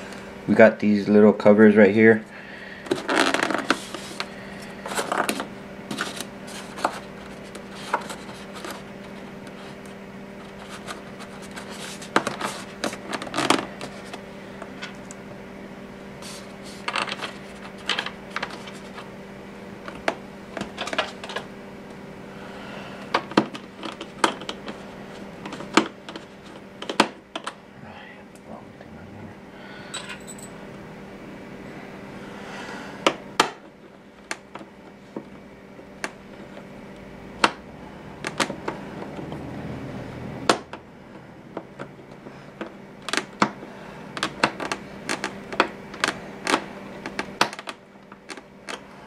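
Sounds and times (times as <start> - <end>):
steady low hum: 0.0 - 49.0
small clicks taps and scraping: 23.1 - 24.8, 38.2 - 39.4, 44.2 - 48.8.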